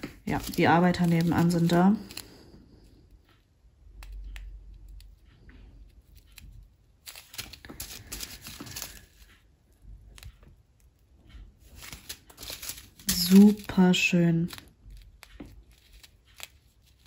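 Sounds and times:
plastic bags crinkling: 0.0 - 2.5, 7.0 - 9.4, 11.6 - 17.0
tiny beads rustling and clicking: 0.0 - 2.6, 3.9 - 17.0.

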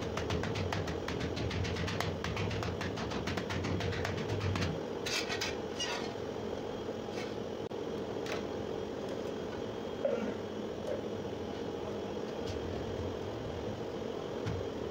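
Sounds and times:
hand tapping ceramic tiles: 0.0 - 4.8.

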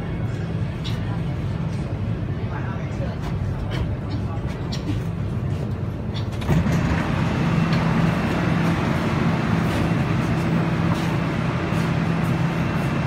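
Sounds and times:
metro car rumble: 0.0 - 13.0.

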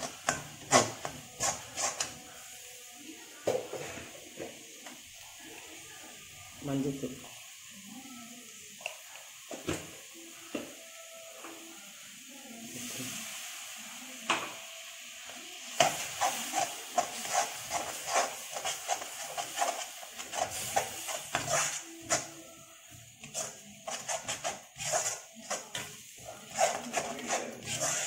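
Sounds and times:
metal spatula scraping metal pan: 0.0 - 2.2, 15.8 - 22.5, 23.2 - 28.0
frying sizzle: 0.0 - 28.0.

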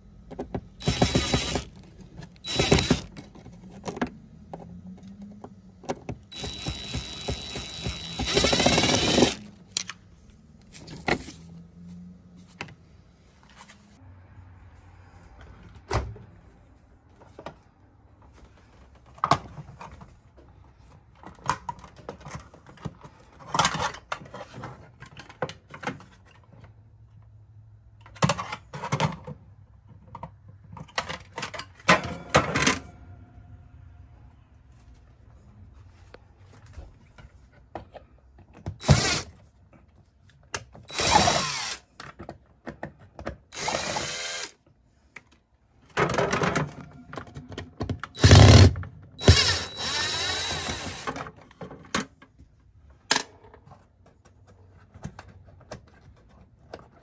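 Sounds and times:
power screwdriver running: 0.8 - 3.2, 6.3 - 9.6, 38.8 - 39.3, 40.9 - 41.8, 43.6 - 44.6, 48.2 - 51.2.

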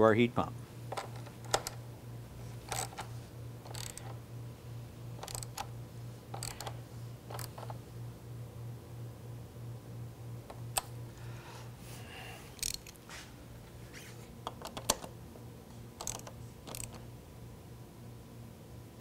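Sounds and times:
steady low hum: 0.0 - 19.0
ratchet clicks: 0.9 - 1.8, 2.7 - 4.2, 5.2 - 5.7, 6.3 - 7.8, 12.6 - 13.0, 16.0 - 17.0.

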